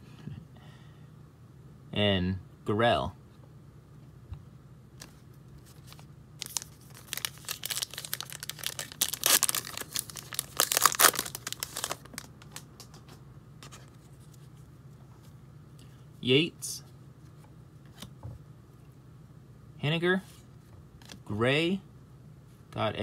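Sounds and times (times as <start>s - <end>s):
foil wrapper tearing and crinkling: 6.4s - 12.6s.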